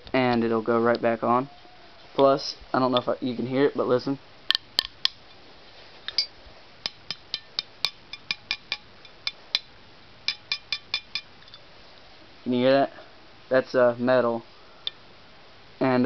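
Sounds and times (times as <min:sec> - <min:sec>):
metallic clinks of tapping: 0:10.3 - 0:11.6.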